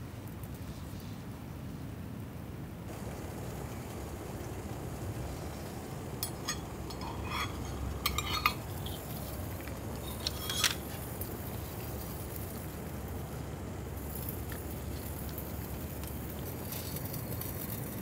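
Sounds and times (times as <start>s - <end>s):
metal cup lid clinking: 6.2s - 9.4s, 10.0s - 11.0s.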